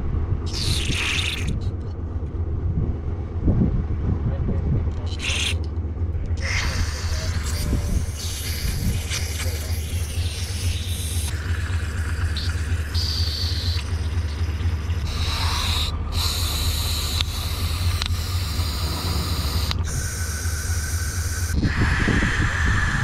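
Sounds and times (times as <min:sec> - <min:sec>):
steady low rumble: 0:00.0 - 0:23.0
aerosol spray hissing: 0:06.4 - 0:14.4, 0:15.0 - 0:21.9.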